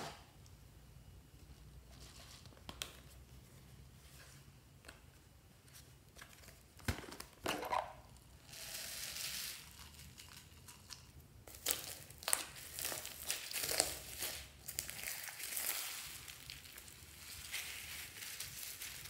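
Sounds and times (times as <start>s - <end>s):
foam beads pouring: 8.4s - 10.6s, 11.5s - 19.0s
crunching slime squeezed: 11.5s - 16.9s.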